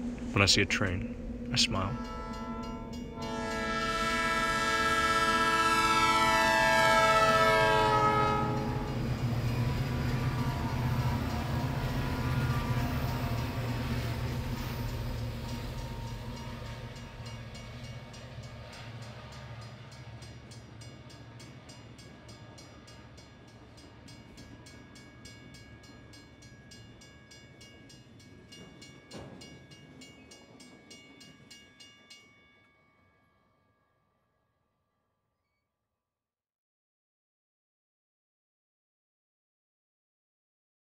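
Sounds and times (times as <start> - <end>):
train rumbling past: 0.0 - 31.8
crossing signal bell ringing: 1.0 - 4.6, 7.1 - 33.7.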